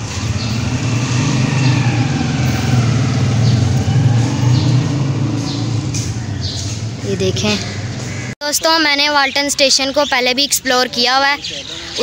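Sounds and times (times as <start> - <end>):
vehicle engine running: 0.0 - 8.4.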